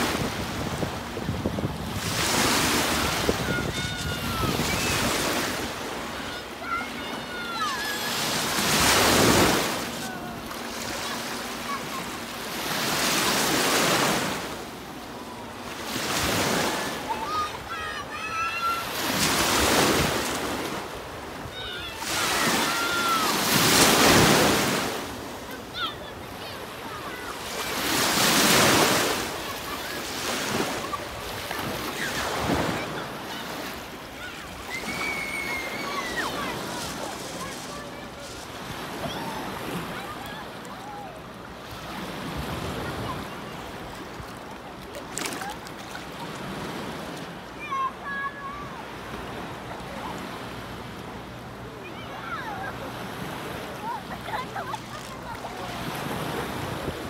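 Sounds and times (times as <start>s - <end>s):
wind buffeting microphone: 0.0s - 5.1s
lake waves breaking: 0.0s - 50.8s, 51.9s - 57.0s
faint high calls: 34.2s - 36.6s.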